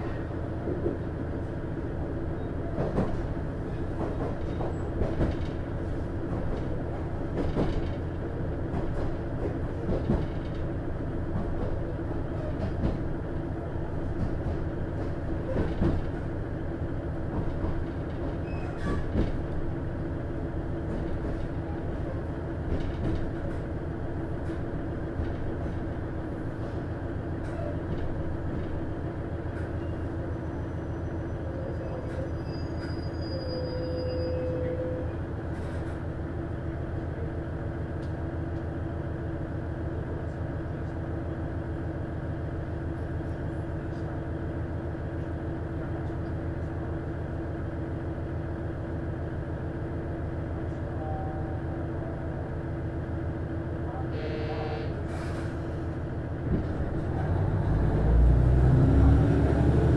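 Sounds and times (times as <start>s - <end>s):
railcar diesel engine drone: 0.0s - 59.9s
brake squeals: 18.4s - 19.2s, 29.8s - 35.2s.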